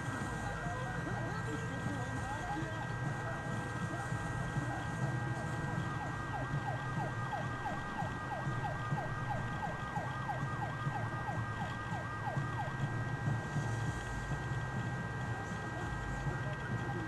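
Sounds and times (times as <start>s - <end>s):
low engine rumble: 0.0s - 17.0s
siren yelping: 2.3s - 13.2s.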